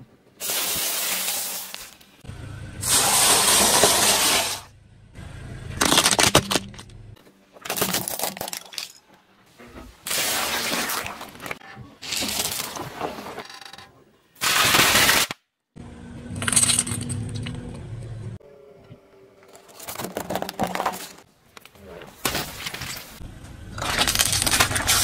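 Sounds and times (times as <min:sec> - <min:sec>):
tyre crunching objects: 0:19.6 - 0:25.0.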